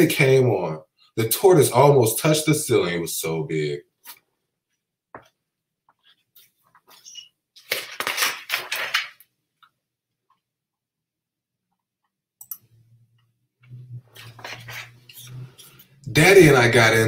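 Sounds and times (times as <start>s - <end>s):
book pages flipping: 5.9s - 9.3s, 14.1s - 15.6s
low hum: 12.6s - 16.8s.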